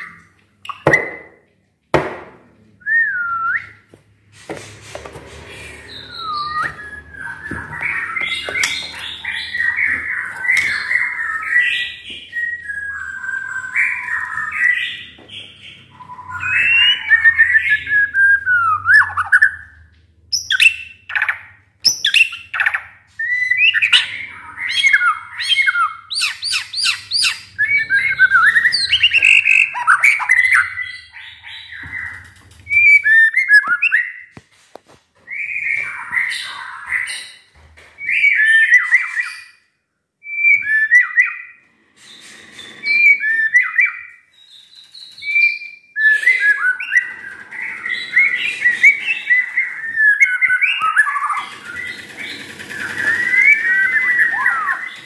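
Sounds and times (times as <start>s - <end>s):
bird singing whistled phrases: 5.9s - 15.1s, 15.7s - 19.6s, 20.4s - 32.1s, 40.2s - 41.6s, 42.9s - 52.0s, 52.8s - 55.0s.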